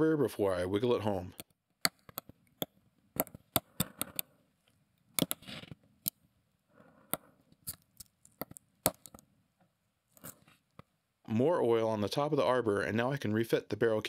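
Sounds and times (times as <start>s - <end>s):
metal tweezers clicking and tapping: 1.4s - 4.3s.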